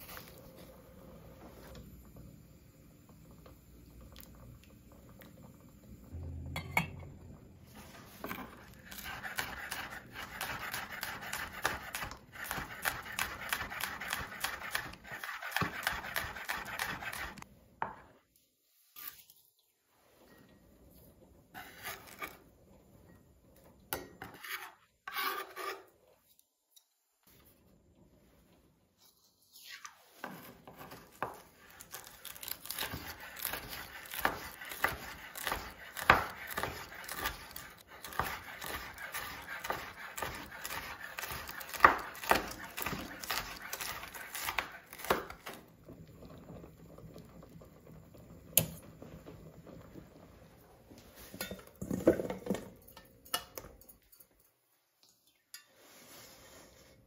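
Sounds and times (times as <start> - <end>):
knife chopping on wooden board: 32.8 - 45.4.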